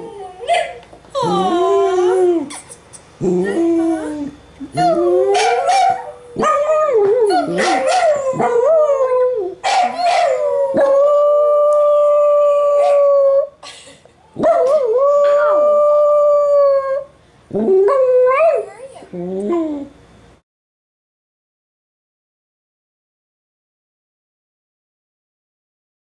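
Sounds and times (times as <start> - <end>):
dog howling: 0.0 - 2.5, 3.2 - 13.6, 14.4 - 19.9.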